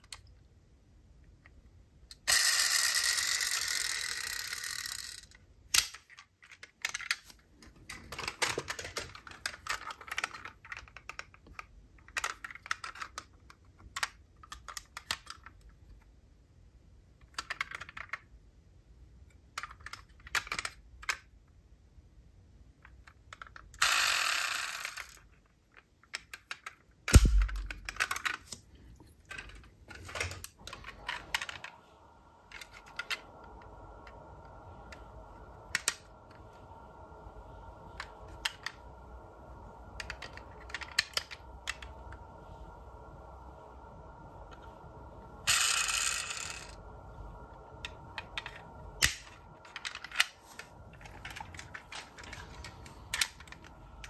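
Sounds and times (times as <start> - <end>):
toy cars clicking and clinking: 2.1 - 15.8, 17.2 - 18.3, 19.4 - 21.3, 22.8 - 26.9, 45.5 - 46.8
toy car rushing sound: 2.2 - 5.4, 23.8 - 25.3, 45.5 - 46.8.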